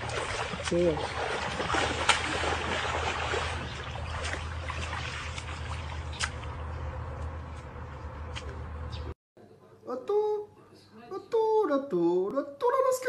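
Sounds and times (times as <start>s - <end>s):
water splashing: 0.0s - 7.6s
low hum: 0.0s - 9.2s.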